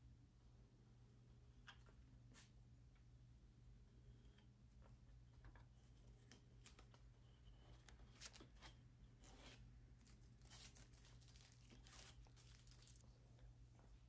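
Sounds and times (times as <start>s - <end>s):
low steady hum: 0.0s - 14.0s
tape ripping and crinkling: 9.4s - 13.1s.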